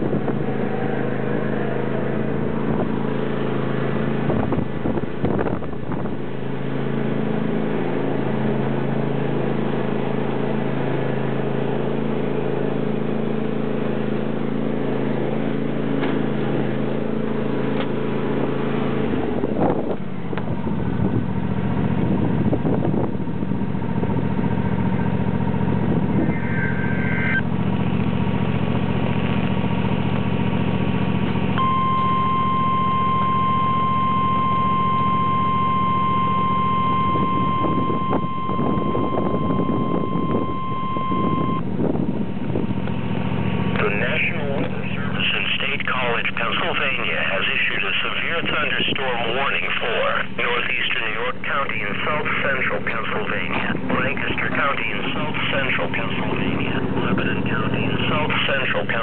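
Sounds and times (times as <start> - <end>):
tractor engine running: 0.0 - 59.0
high-pitched alarm tone: 26.2 - 27.5, 31.6 - 41.6.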